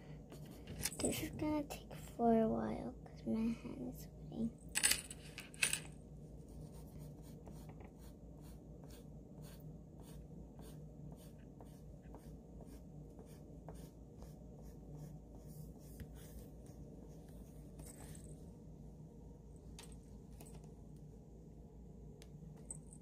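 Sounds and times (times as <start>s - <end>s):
pencil scratching on paper: 6.4s - 18.2s.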